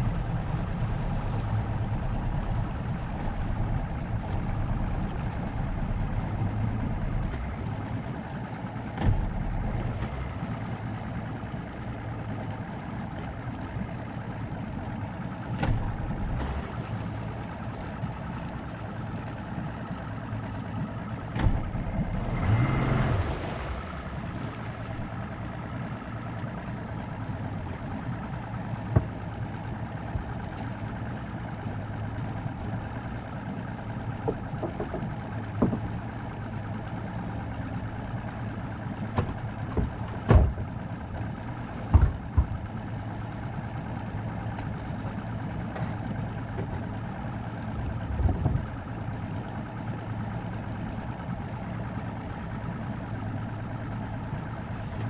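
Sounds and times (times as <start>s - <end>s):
boat motor idling: 0.0s - 55.0s
sharp knocks and thumps: 8.9s - 10.2s, 15.6s - 16.6s, 21.3s - 21.8s, 28.8s - 29.3s, 34.2s - 36.1s, 39.0s - 40.8s, 41.6s - 42.8s, 47.8s - 48.9s.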